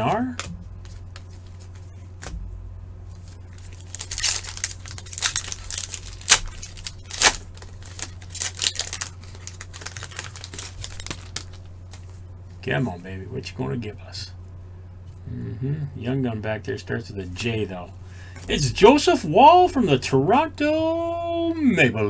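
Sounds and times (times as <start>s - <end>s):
low hum: 0.0s - 21.6s
card pack wrapper crinkling: 3.2s - 12.2s.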